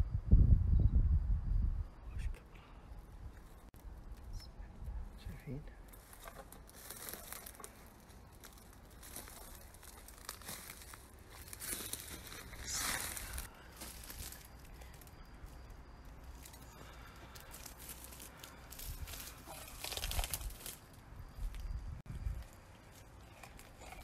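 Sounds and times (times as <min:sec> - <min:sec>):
dry brush crackling and rustling: 0:05.8 - 0:24.0.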